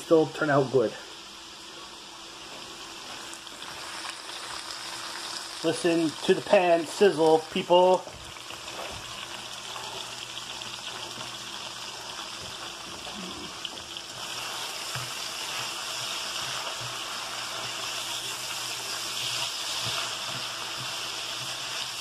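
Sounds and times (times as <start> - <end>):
peppers sizzling in hot oil: 2.4 - 22.0
spatula stirring: 10.8 - 22.0.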